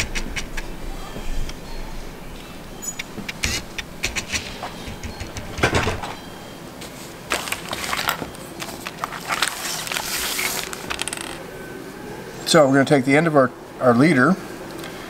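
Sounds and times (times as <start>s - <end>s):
small items clicking and knocking: 7.3s - 11.4s.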